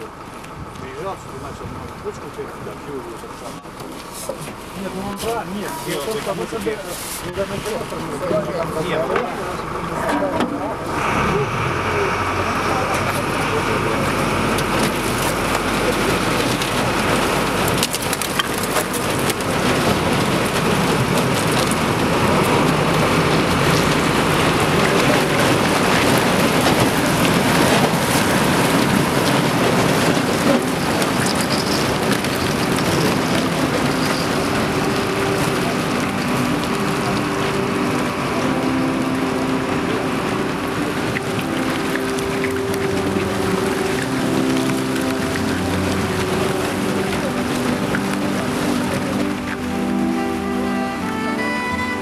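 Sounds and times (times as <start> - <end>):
ice crackling and crunching: 12.9 - 50.9.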